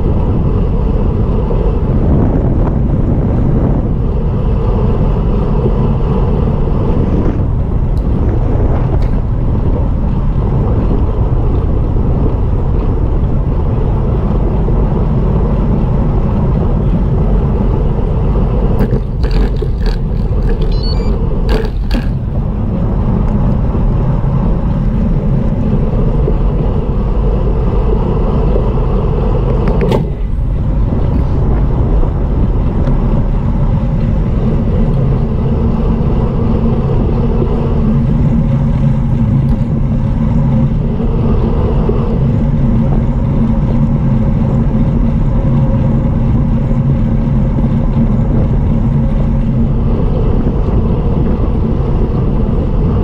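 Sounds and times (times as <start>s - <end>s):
tyre and road rumble: 0.0s - 53.0s
wind buffeting microphone: 0.0s - 53.0s.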